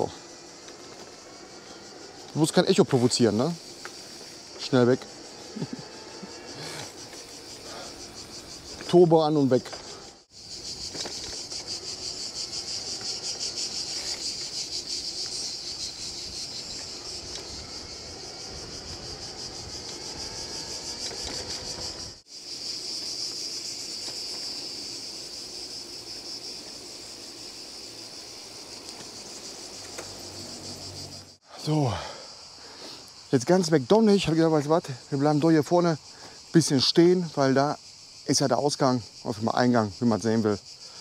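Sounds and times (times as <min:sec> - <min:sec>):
insects chorus: 0:00.0 - 0:41.0
electric bike motor whine: 0:10.5 - 0:22.2.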